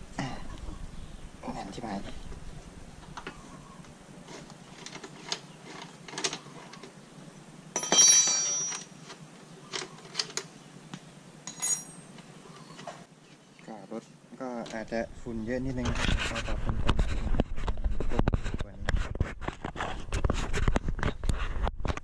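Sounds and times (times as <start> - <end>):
loud ringing metallic clank: 7.8 - 8.9.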